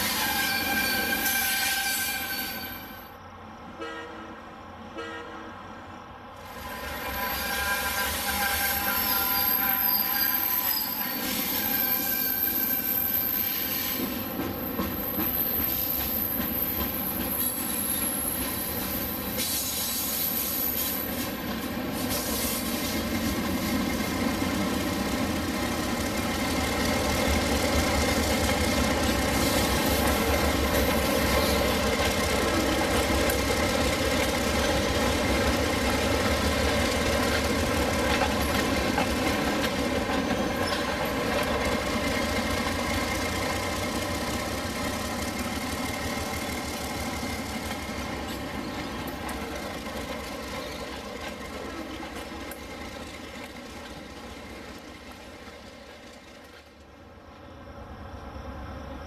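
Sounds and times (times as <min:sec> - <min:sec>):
wheel squeal: 0:00.0 - 0:03.1, 0:06.5 - 0:21.4, 0:37.4 - 0:42.1
freight train rolling past: 0:00.0 - 0:59.0
diesel locomotive rumble: 0:02.7 - 0:59.0.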